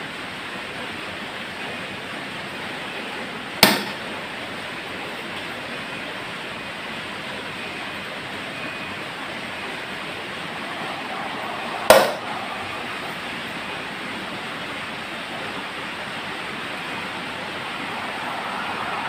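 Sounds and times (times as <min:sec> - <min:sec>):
electric fan whooshing: 0:08.5 - 0:19.0.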